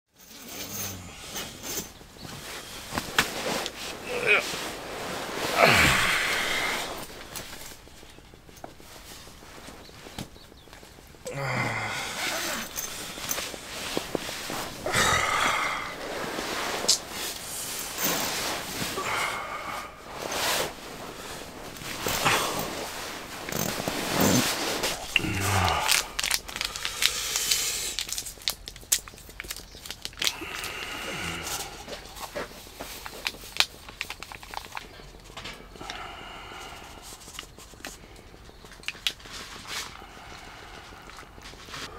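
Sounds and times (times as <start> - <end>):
sleeping bag rustling: 0.2 - 41.9
man groaning and sighing: 4.0 - 4.6, 5.4 - 7.1, 11.2 - 13.3, 13.9 - 16.4, 18.9 - 20.1, 22.0 - 23.2, 24.0 - 27.5, 30.3 - 32.2
packet tearing and crinkling: 24.9 - 31.8, 32.9 - 34.9.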